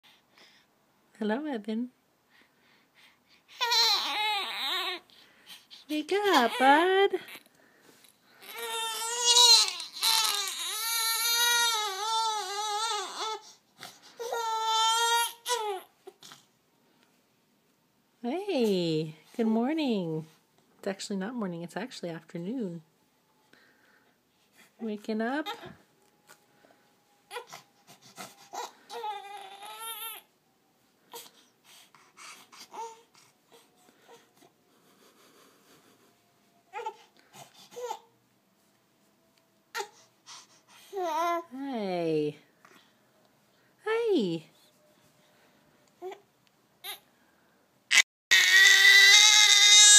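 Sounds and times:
baby crying: 3.6 - 5.0, 8.4 - 13.5, 14.2 - 16.2, 27.3 - 30.3, 32.2 - 34.3, 47.9 - 49.9.

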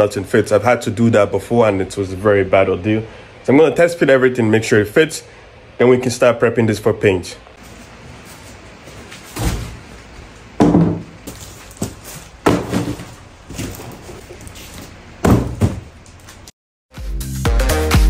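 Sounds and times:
cardboard thumps and scrapes: 9.0 - 9.9, 10.6 - 16.0.

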